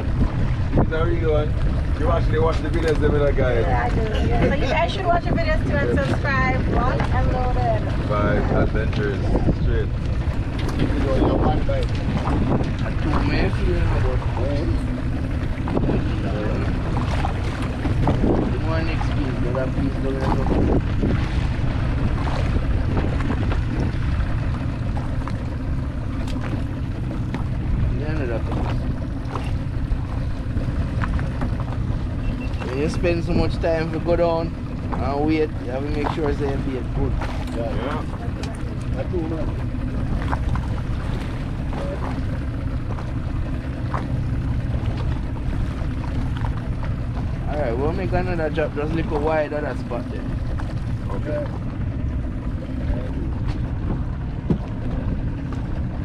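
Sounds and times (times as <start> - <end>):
water washing around boat: 0.0 - 56.0
wind rumble on microphone: 0.0 - 56.0.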